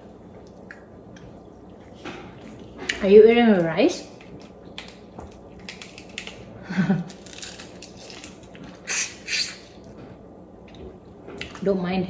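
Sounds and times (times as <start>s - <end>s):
shells cracking and peeling: 4.2s - 9.8s.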